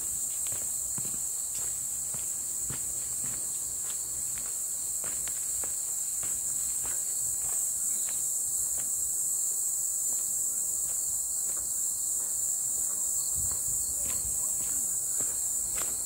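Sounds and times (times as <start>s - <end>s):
footsteps on dry leaves: 0.0s - 8.3s
insects droning: 0.0s - 16.0s.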